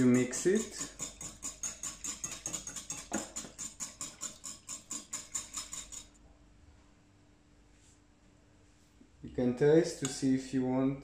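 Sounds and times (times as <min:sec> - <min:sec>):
whisk clicking against bowl: 0:00.0 - 0:06.2.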